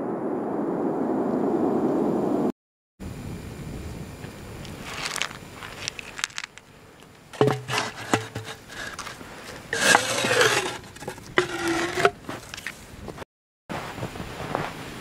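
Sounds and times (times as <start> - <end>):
squeaky scrapes: 7.4 - 12.6
stick scraping plastic pipe: 7.4 - 12.8.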